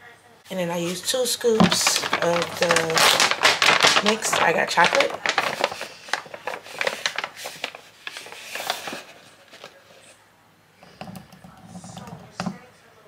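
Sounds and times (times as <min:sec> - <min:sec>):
plastic pouch crinkling: 0:00.8 - 0:10.2.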